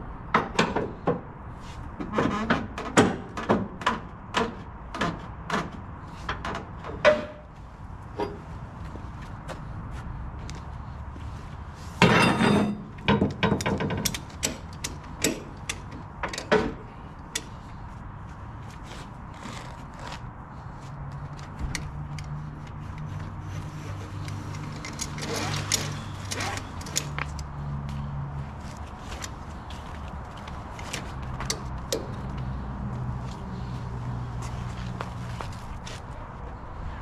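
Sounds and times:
metal clicks and knocks: 12.0 - 17.6
tie-down strap hardware rattling: 12.2 - 17.6, 21.1 - 27.5.

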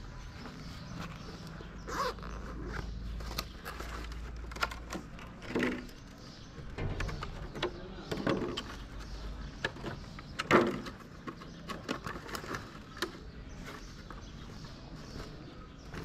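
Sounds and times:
plastic tubs clicking on concrete: 3.4 - 14.4.

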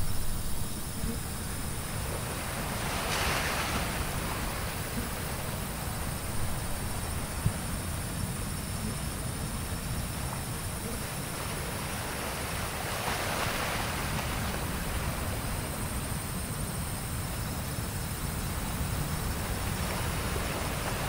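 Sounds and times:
ocean surf: 0.0 - 21.0
wind on microphone: 0.0 - 21.0.

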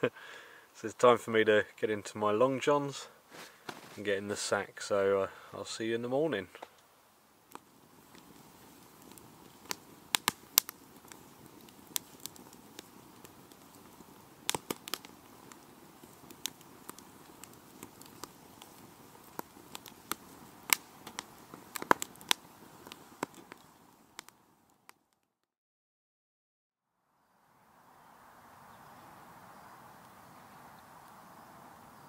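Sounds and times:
wood popping in fire: 3.3 - 4.1, 6.5 - 25.3
flames rushing: 7.4 - 24.9.

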